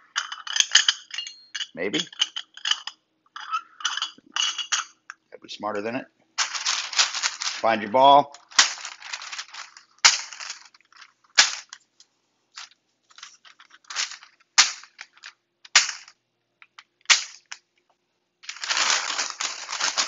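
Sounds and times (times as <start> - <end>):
parchment paper crinkling: 6.4 - 11.7, 18.4 - 20.0
parchment paper rustling: 6.4 - 11.8, 12.6 - 15.3, 18.4 - 20.0.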